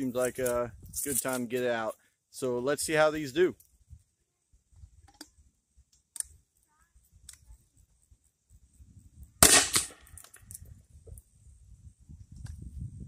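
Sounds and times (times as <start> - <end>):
grenade launcher shot: 9.4 - 10.1
sharp crack: 9.4 - 10.5.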